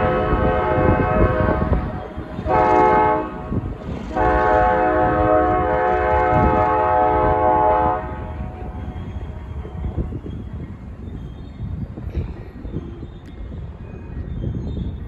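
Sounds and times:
train horn blasts: 0.0s - 8.8s
low rumble of train: 0.0s - 15.0s.

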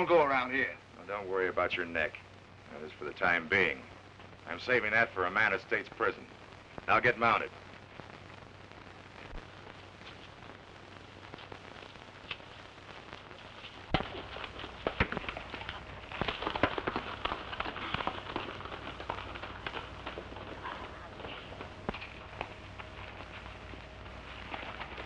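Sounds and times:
film soundtrack hiss: 0.0s - 25.0s
horses' hooves on dirt: 13.6s - 25.0s.

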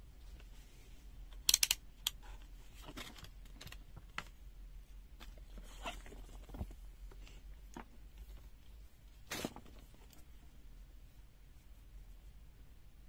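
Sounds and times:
plastic clicks: 1.3s - 2.3s.

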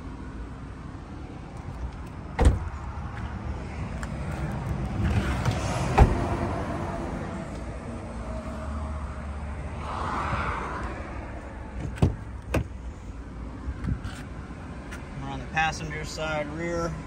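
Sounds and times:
car door shutting thump: 2.4s - 2.7s, 5.4s - 6.2s, 11.8s - 12.7s.

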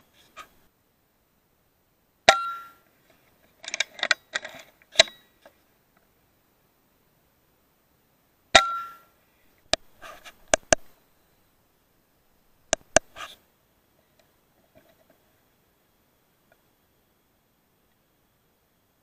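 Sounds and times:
small clicks and clatter: 3.1s - 6.1s.

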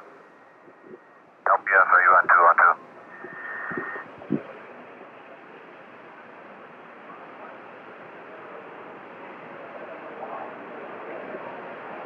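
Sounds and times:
radio line hiss: 0.8s - 4.1s.

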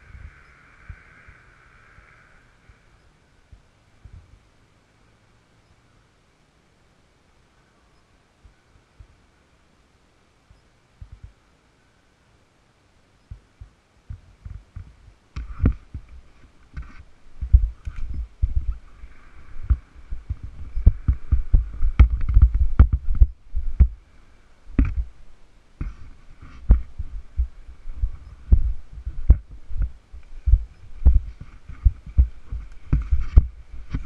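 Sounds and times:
faint steady hum: 0.0s - 34.0s
camera thumps and knocks: 19.6s - 24.0s, 24.8s - 25.1s, 25.8s - 27.5s, 30.5s - 34.0s.

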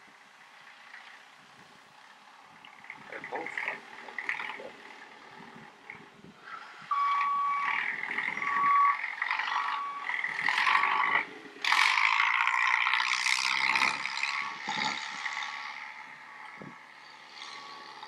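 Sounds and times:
backhoe loader running: 0.0s - 18.0s
reversing alarm beeps: 6.9s - 10.2s.

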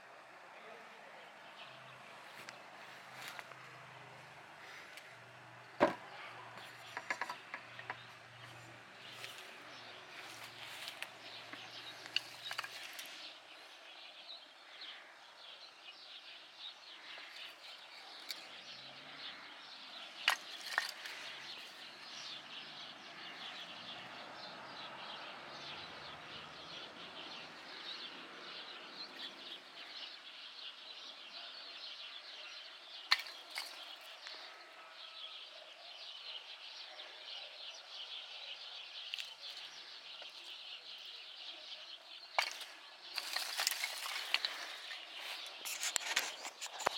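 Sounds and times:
birds chirping: 0.0s - 46.9s
branches rustling in a pile: 2.1s - 14.0s, 17.0s - 22.4s, 42.2s - 46.9s
wood knocking on wood: 5.8s - 8.2s.

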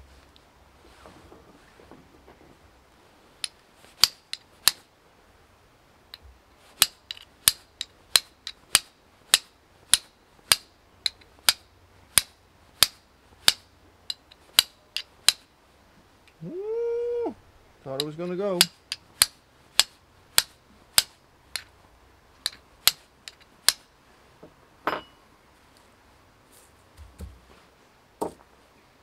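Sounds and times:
steel striking flint: 3.4s - 4.9s, 6.7s - 15.5s, 17.9s - 21.7s, 22.4s - 23.9s, 24.8s - 25.2s.

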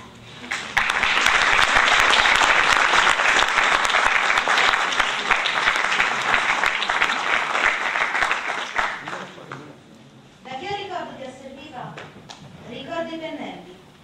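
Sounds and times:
audience applauding: 0.4s - 9.7s.

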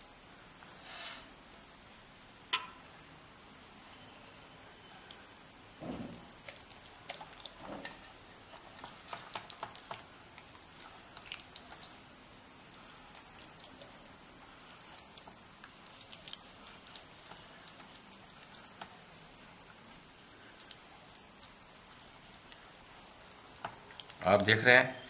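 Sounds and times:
brush squelching wet paste: 6.2s - 7.7s, 8.4s - 24.6s.

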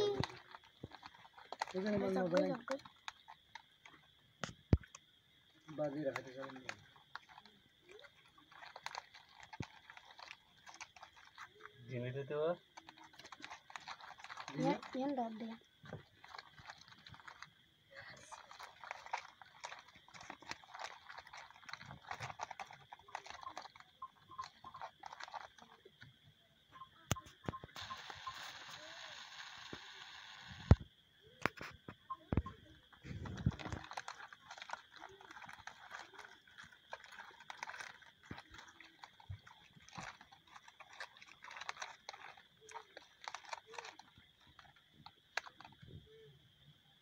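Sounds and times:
fish flapping in plastic basket: 0.0s - 3.6s, 5.7s - 11.8s, 12.6s - 25.8s, 32.4s - 46.1s.

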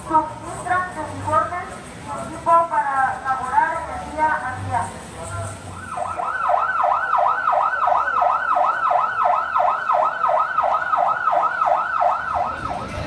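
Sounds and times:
police siren yelping: 5.4s - 13.0s.

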